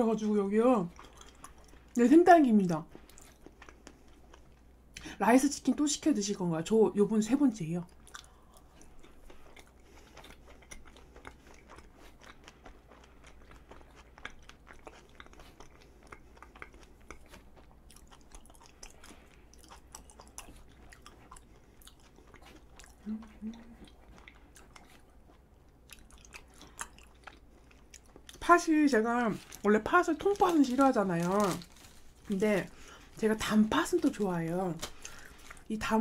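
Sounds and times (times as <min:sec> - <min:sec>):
mouth chewing sticky food: 0:00.1 - 0:05.1, 0:07.8 - 0:35.7.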